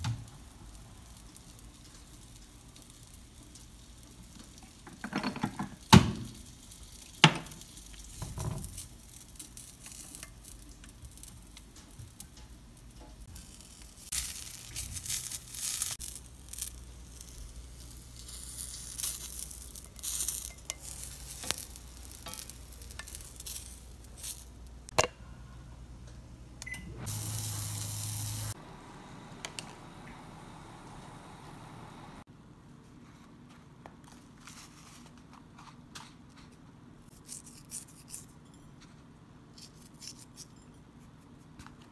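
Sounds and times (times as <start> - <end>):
corn sizzling in oil: 0.0 - 24.9, 27.0 - 32.2
steady hiss with low hum: 0.0 - 41.9.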